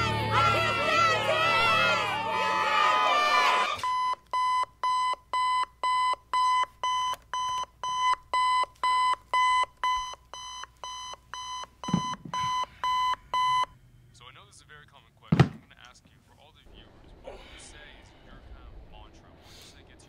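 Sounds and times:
alarm clock beeping: 0:03.8 - 0:13.8.

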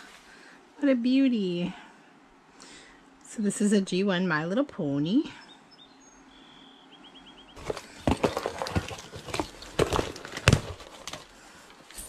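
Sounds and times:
bird chirping faintly: 0:05.4 - 0:07.6.

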